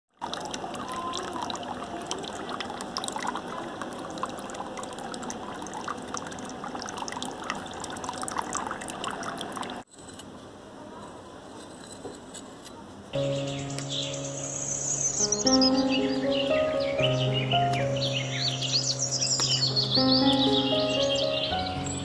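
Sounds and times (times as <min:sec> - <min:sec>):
water trickling into tub: 0:00.1 - 0:09.8.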